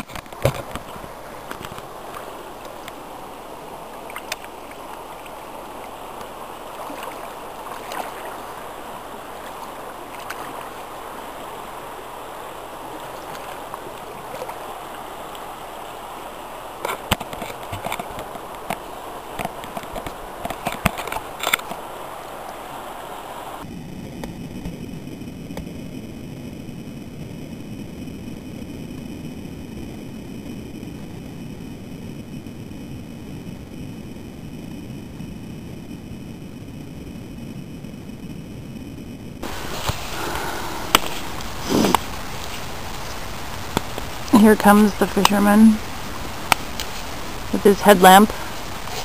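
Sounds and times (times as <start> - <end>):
water splashes and knocks: 0.0 - 3.0, 3.9 - 11.3, 13.0 - 15.5, 16.8 - 21.8
river water running: 0.0 - 23.6, 39.4 - 49.0.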